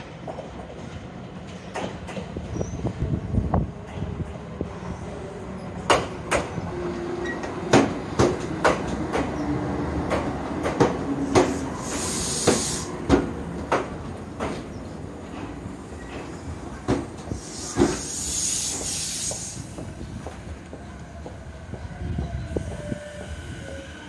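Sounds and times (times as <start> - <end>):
train wheels clacking over rail joints: 5.9 - 6.6, 7.2 - 9.4, 10.0 - 14.7
air hiss: 11.3 - 13.0, 17.2 - 20.4.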